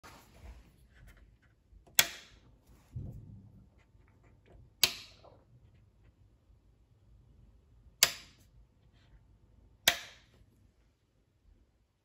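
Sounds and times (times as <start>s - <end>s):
low rumble: 2.8s - 3.8s.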